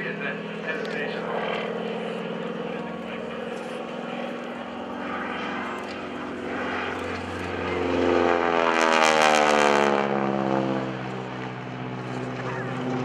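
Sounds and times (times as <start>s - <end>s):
propeller plane flying by: 0.0s - 13.0s.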